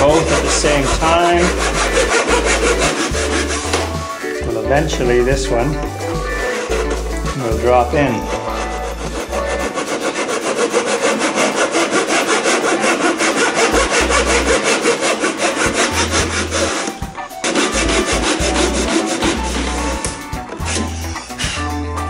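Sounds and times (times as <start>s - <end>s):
hand saw cutting wood: 0.0s - 21.8s.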